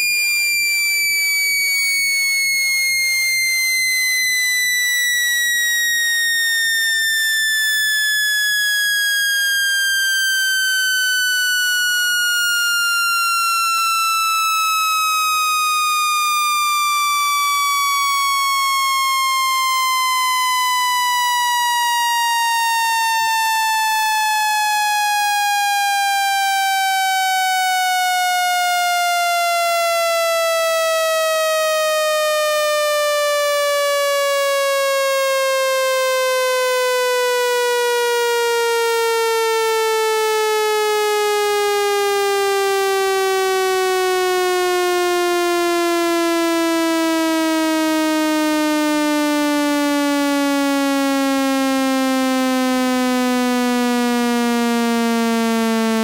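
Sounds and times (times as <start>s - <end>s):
buzzy tone sliding down in pitch: 0.0s - 14.4s.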